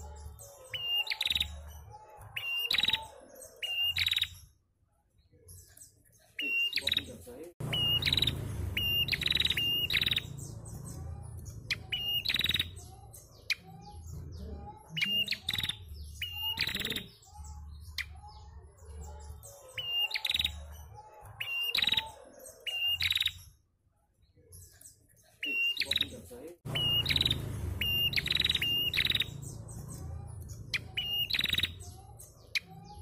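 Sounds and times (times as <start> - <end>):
fainter lower bird calls: 0.0 - 4.6, 5.5 - 23.6, 24.5 - 33.0
bird chirping and whistling: 0.7 - 1.7, 2.4 - 4.4, 6.4 - 13.8, 14.9 - 18.2, 19.8 - 20.7, 21.4 - 23.5, 26.7 - 33.0
low rumble: 26.7 - 31.2.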